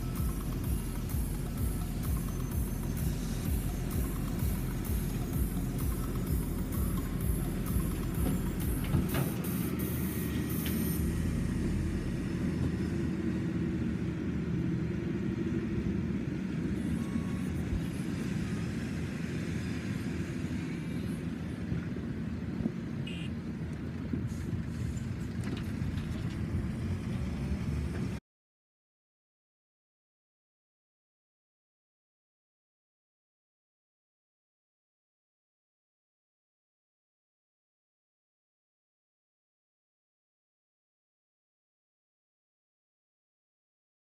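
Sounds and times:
heavy diesel machinery rumbling: 0.0s - 28.2s.

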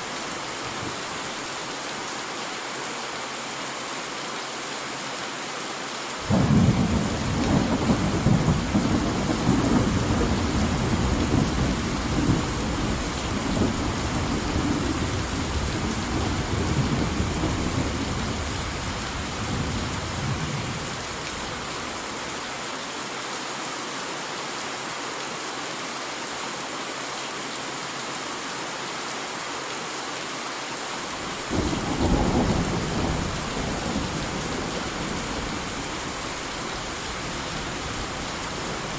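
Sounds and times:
heavy rain: 0.0s - 38.9s
rolling thunder: 6.3s - 21.0s, 31.5s - 36.1s.

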